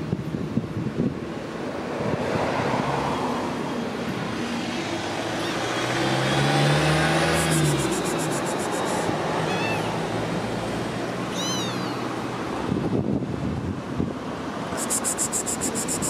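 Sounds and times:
car passing: 1.7s - 13.0s.

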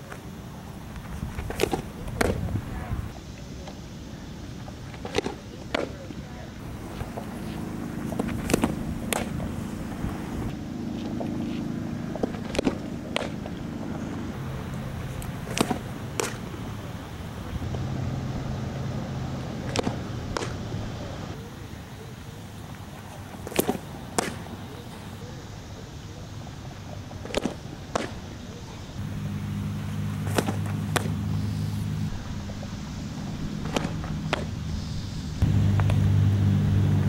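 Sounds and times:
steady low hum: 0.0s - 37.0s
ball smacking into leather mitt: 1.3s - 2.5s, 6.7s - 11.6s, 12.2s - 13.6s, 15.1s - 16.8s, 19.7s - 20.6s, 23.4s - 24.6s, 27.2s - 28.3s, 29.0s - 31.5s, 33.6s - 34.5s.

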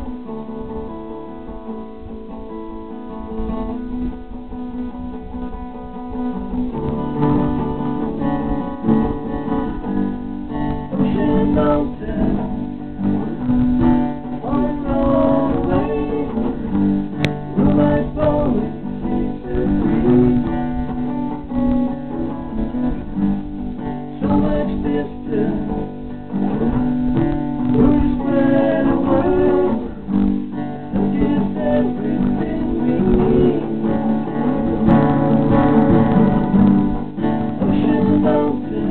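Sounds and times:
acoustic guitar strummed: 0.0s - 38.9s
man singing: 10.5s - 23.2s, 23.9s - 38.9s.

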